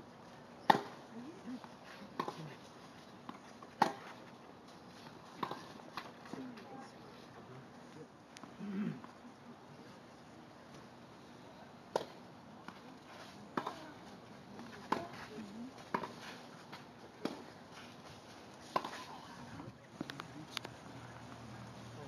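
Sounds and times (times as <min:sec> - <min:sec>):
tennis balls struck by rackets: 0:00.6 - 0:01.0, 0:01.6 - 0:02.6, 0:03.2 - 0:04.4, 0:05.0 - 0:06.7, 0:11.9 - 0:17.5, 0:18.6 - 0:19.2.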